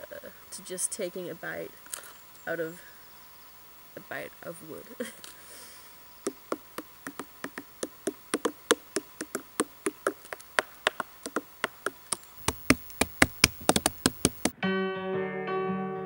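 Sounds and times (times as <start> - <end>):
fingers tapping on fungi: 6.2 - 14.5.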